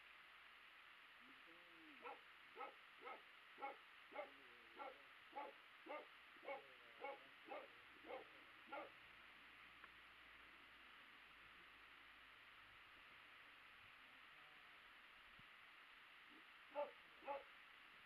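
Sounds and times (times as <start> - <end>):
dog barking faintly: 1.6 - 9.0, 16.3 - 17.6.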